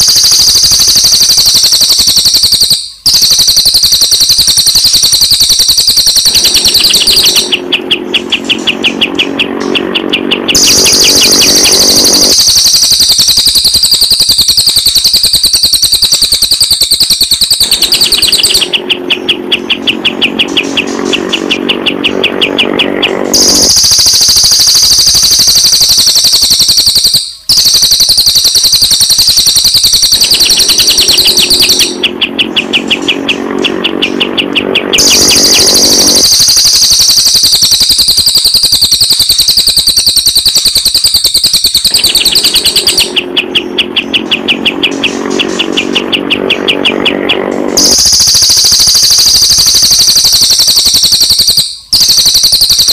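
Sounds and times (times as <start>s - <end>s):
fast high bird chattering: 0.0s - 38.6s, 39.2s - 50.9s
low pulsing bird call: 6.2s - 12.6s, 17.6s - 23.9s, 30.2s - 36.4s, 42.0s - 48.1s.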